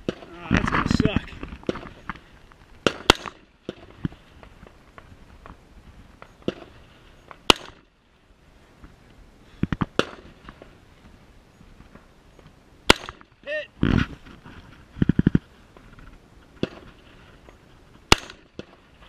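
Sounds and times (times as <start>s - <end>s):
gunshots: 2.8s - 4.0s, 7.4s - 7.9s, 9.9s - 10.4s, 12.9s - 13.6s, 16.6s - 17.0s, 18.1s - 18.9s.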